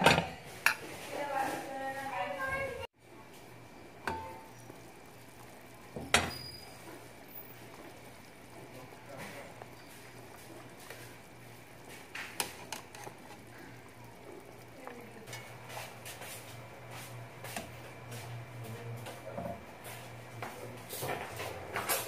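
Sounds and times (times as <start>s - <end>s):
steady low hum: 3.0s - 22.0s
metal tongs clinking on a pot: 4.0s - 4.6s.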